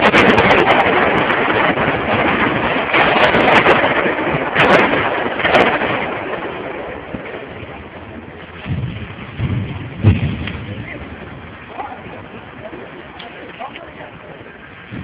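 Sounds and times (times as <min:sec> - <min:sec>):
sharp cracks: 0:00.0 - 0:07.8, 0:08.4 - 0:11.9
explosion rushing noise: 0:00.0 - 0:15.0.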